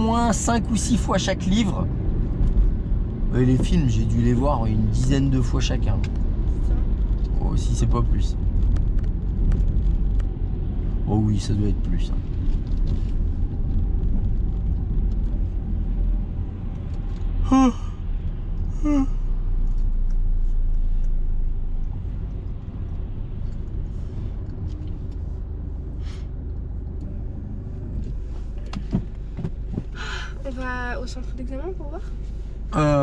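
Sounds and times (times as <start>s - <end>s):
engine and tyre rumble: 0.0s - 33.0s
short voice sounds: 17.4s - 18.0s, 18.8s - 19.2s.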